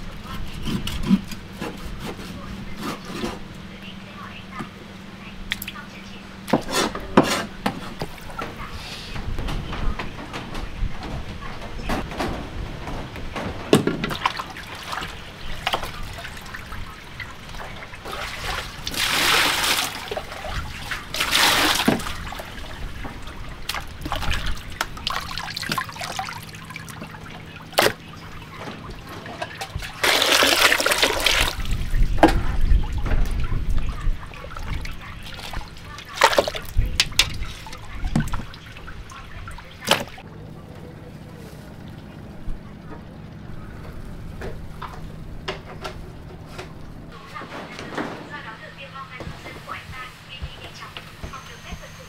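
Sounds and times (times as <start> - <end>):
water splashing and trickling: 13.8 - 48.0.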